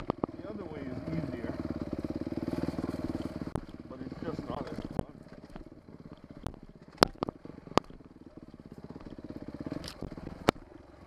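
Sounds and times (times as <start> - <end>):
knocks and clacks from bike: 0.0 - 0.4, 1.8 - 3.9, 4.5 - 10.7
dirt bike engine running: 0.0 - 11.0.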